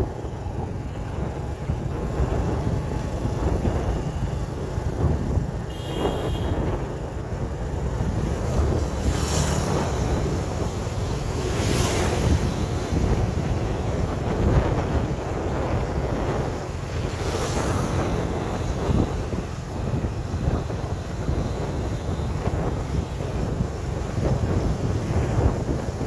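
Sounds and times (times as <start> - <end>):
busy street traffic: 0.0 - 26.0
wind buffeting microphone: 0.0 - 26.0
vehicles swishing past: 6.6 - 26.0.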